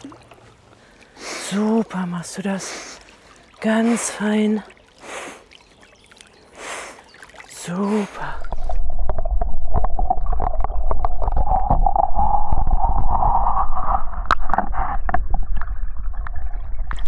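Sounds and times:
muffled underwater rumble: 8.2s - 17.0s
small underwater clicks: 8.4s - 12.1s.

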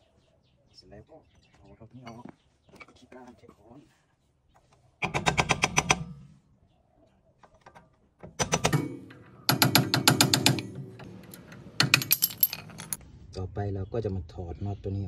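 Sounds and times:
hammer striking metal: 8.4s - 11.1s.

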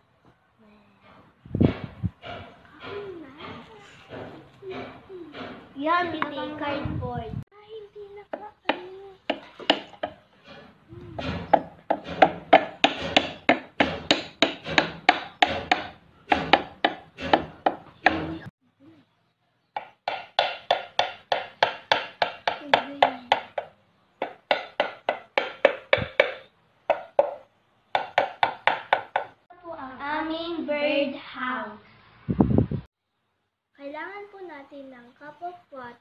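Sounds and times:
wooden mallet knocking wood: 8.3s - 10.2s, 11.2s - 18.5s, 19.8s - 29.4s.

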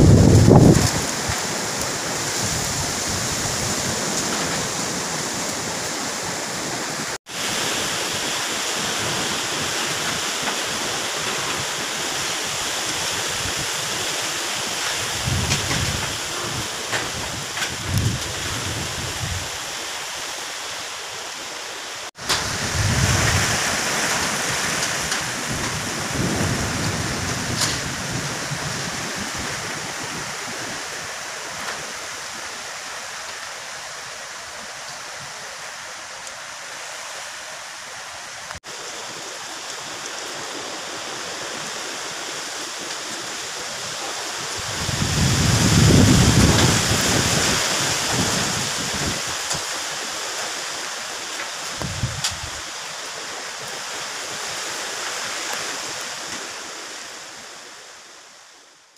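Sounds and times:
wind gusts buffeting microphone: 0.0s - 19.7s, 22.2s - 32.5s, 39.8s - 50.0s, 51.4s - 53.0s
storm wind through trees: 0.0s - 58.9s.

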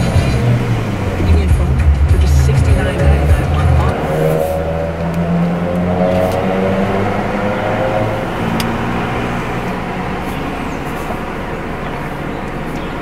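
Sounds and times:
low droning hum: 0.0s - 13.0s
car interior rumble and hiss: 8.1s - 13.0s.

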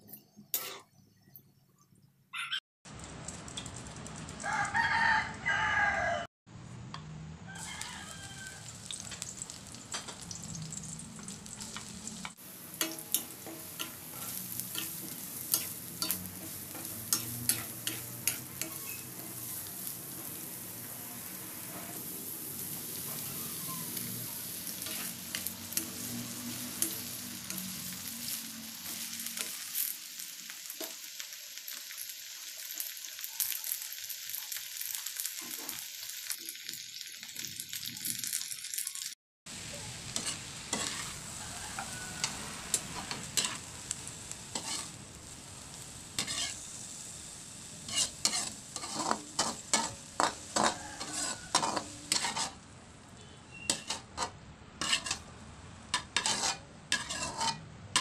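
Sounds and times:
spatula scraping a wok: 0.2s - 1.0s, 10.8s - 30.1s, 39.6s - 58.0s
vegetables sizzling in hot oil: 7.6s - 58.0s.

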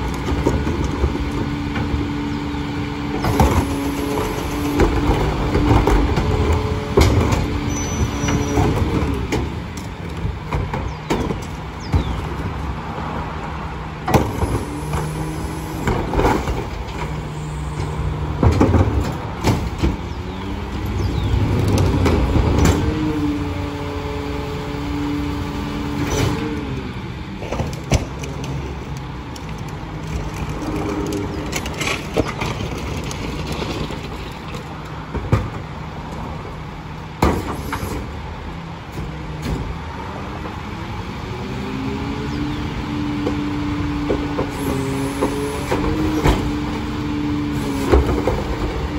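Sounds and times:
garbage truck engine revving: 0.0s - 34.4s, 38.8s - 48.9s
metal and trash clanking: 3.2s - 12.5s, 15.8s - 20.2s.

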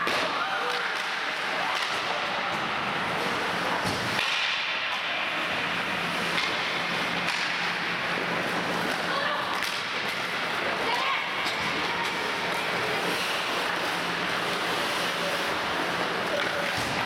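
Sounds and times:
hockey sticks and puck clacking: 0.0s - 17.0s
skate blades scraping ice: 5.4s - 17.0s.

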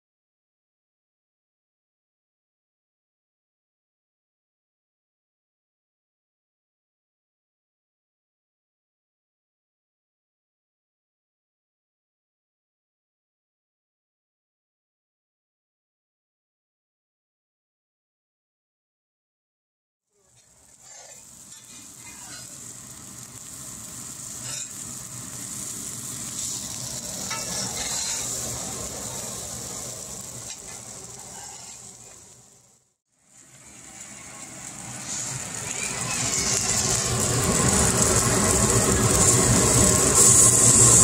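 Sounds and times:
food sizzling in frying pans: 20.2s - 41.0s
utensil scraping a pan: 20.3s - 22.8s, 24.3s - 25.0s, 26.3s - 28.6s, 30.5s - 32.2s.

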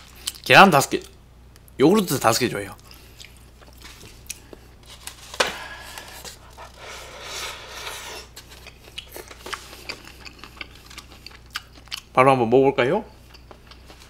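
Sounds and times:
chewing: 2.8s - 4.6s, 8.2s - 12.2s, 13.2s - 14.0s.

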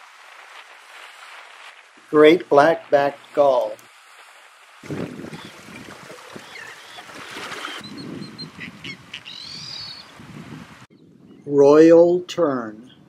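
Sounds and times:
outdoor background noise: 0.0s - 11.3s
terns calling: 4.8s - 10.2s.

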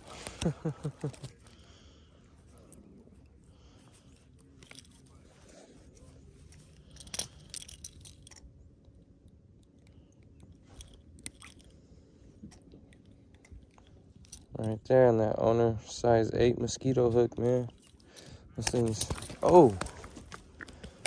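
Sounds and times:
small clicks and crunchy rustles: 0.0s - 1.8s, 16.9s - 21.0s.

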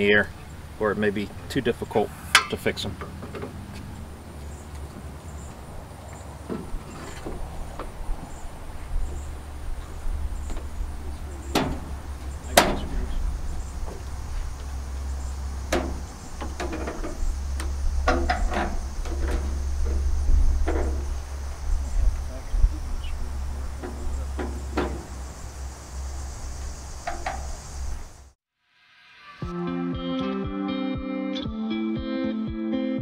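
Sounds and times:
metal frame knocks and clanks: 10.4s - 13.2s, 15.6s - 21.2s, 23.6s - 25.2s.

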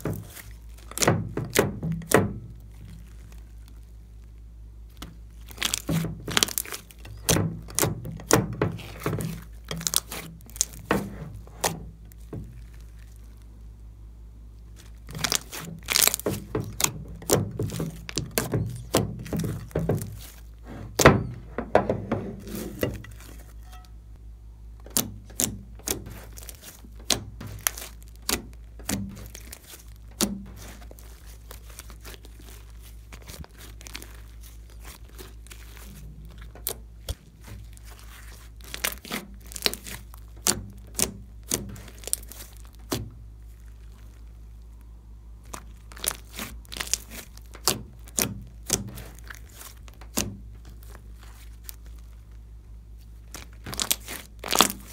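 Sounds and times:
slime clicking and popping: 24.9s - 37.2s, 45.4s - 52.1s, 53.3s - 54.9s.

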